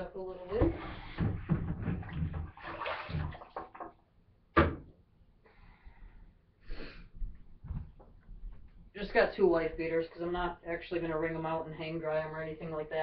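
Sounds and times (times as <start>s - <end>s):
handling noises at plastic bucket: 0.3s - 4.0s
water swish: 2.0s - 3.9s.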